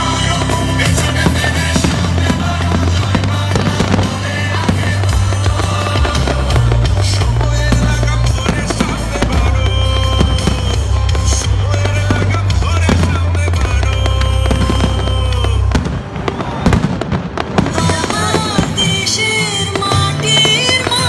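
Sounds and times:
loud music with heavy bass: 0.0s - 16.0s
firework shells bursting and crackling: 0.0s - 21.0s.

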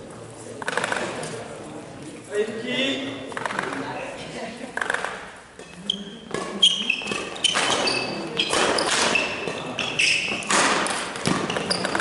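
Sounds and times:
rackets striking shuttlecock: 4.8s - 12.0s
shoe squeaks: 5.6s - 10.6s, 11.2s - 12.0s
footfalls on sports hall floor: 6.3s - 12.0s.

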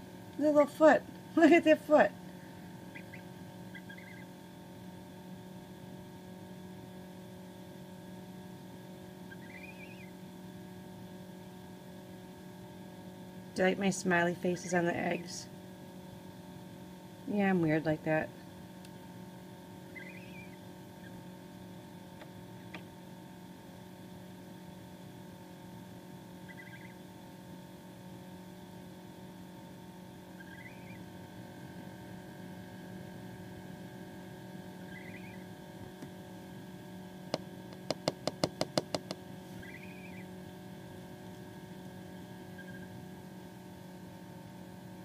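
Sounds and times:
mains hum: 0.0s - 45.0s
gosling peeping: 2.9s - 4.3s, 9.3s - 10.1s, 19.9s - 21.2s, 26.4s - 27.0s, 30.4s - 31.0s, 34.8s - 35.5s, 39.6s - 40.3s, 42.5s - 42.9s.

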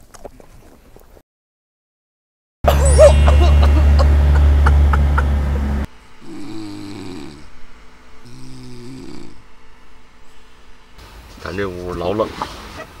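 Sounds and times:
loud low drone: 2.7s - 11.1s
person snoring: 6.2s - 7.6s, 8.2s - 9.4s.

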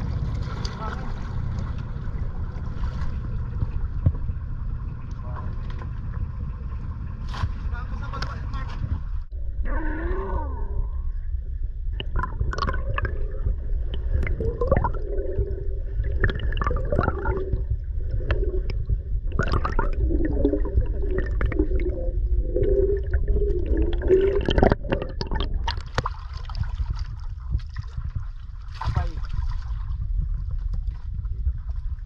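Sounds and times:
deep rumble: 0.0s - 32.0s
underwater gurgling water: 9.4s - 32.0s.

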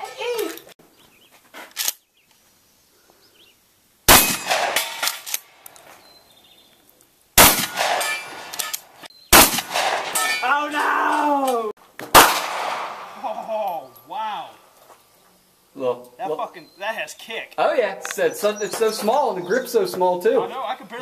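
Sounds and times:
handgun shots with echo: 4.1s - 5.4s, 7.4s - 10.4s, 12.1s - 13.2s.

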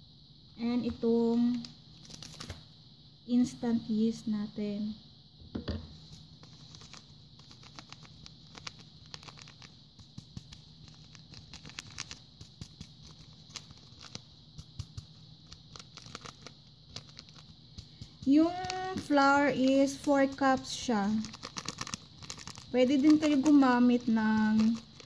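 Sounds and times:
yeast granules ticking on flour: 6.1s - 25.0s.

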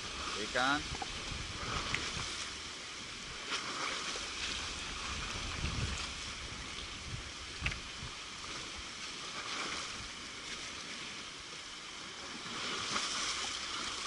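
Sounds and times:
wind gusting on microphone: 0.0s - 10.2s
sea washing against rocks: 0.0s - 14.0s
faint ticks: 7.6s - 7.8s.

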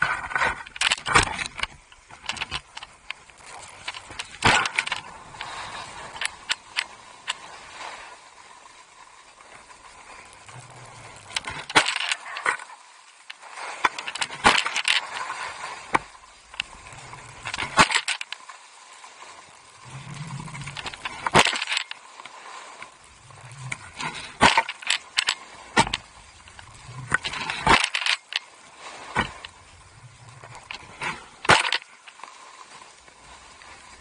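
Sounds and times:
sharp clicks and rattles: 0.0s - 5.5s, 20.1s - 22.0s
skis scraping on packed snow: 0.0s - 34.0s.

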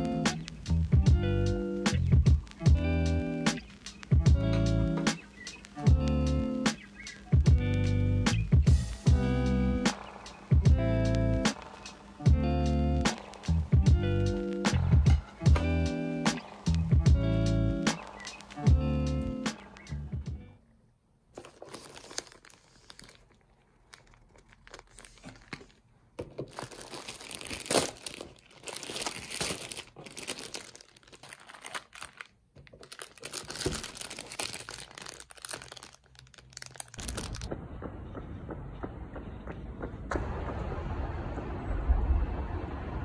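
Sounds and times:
steady low rumble: 7.4s - 20.5s, 37.0s - 43.0s
plastic packaging crinkling: 18.1s - 18.7s, 21.3s - 37.5s.

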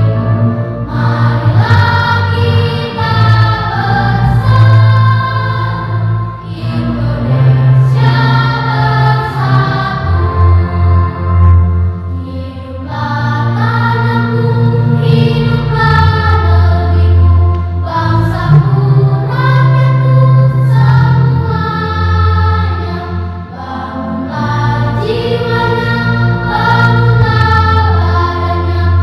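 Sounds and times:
children's choir singing: 0.0s - 29.0s
sustained low bass notes: 0.0s - 29.0s.

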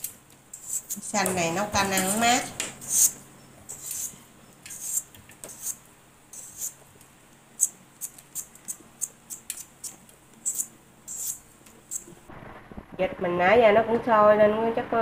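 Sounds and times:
vegetable peeler scraping rind: 0.0s - 1.2s, 1.8s - 6.8s, 7.6s - 12.2s.

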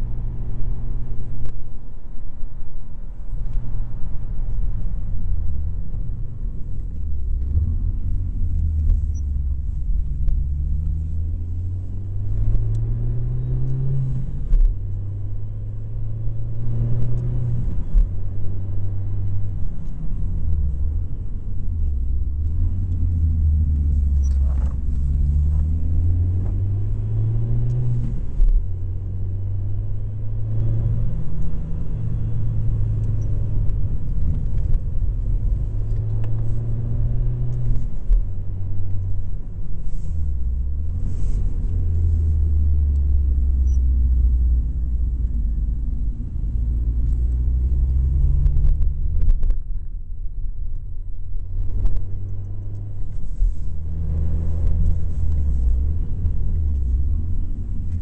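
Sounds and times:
road rumble: 0.0s - 58.0s
rally car engine revving: 7.3s - 21.2s, 21.8s - 49.6s.

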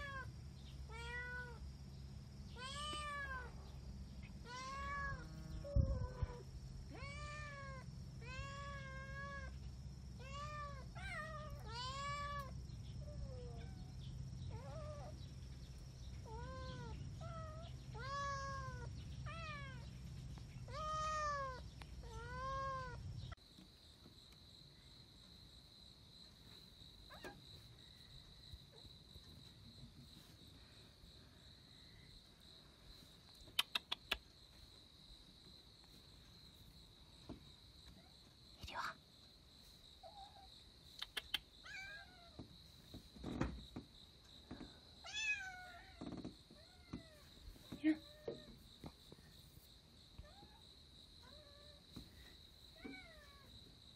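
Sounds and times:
high insect trill: 0.0s - 53.9s
quick clicks: 33.4s - 34.3s, 40.9s - 41.5s.

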